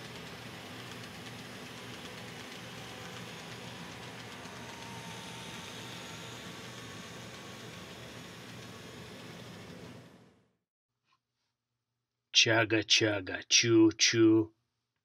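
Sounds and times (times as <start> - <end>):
low motor hum: 0.0 - 10.4
model train rolling: 0.0 - 10.4.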